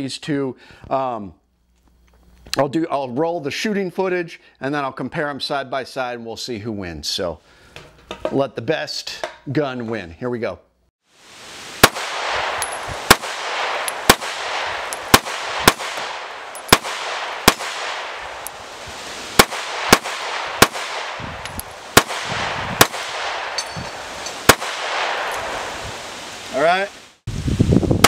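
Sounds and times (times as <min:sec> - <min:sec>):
steady background hiss: 0:11.0 - 0:27.9
pistol shots: 0:11.8 - 0:25.6.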